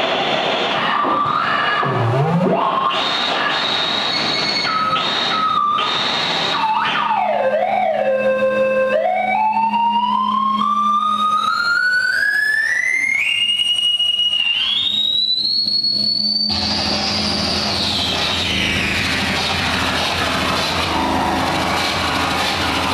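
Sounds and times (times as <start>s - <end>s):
harsh noise: 0.0s - 8.5s, 13.2s - 22.9s
synthesizer tone sweeping upward: 14.2s - 22.9s
low hum: 16.5s - 22.9s.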